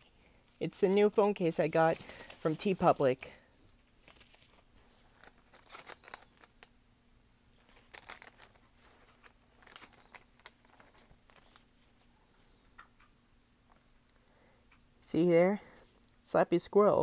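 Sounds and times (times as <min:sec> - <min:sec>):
packaging rustling: 0:01.0 - 0:06.7, 0:07.6 - 0:12.1.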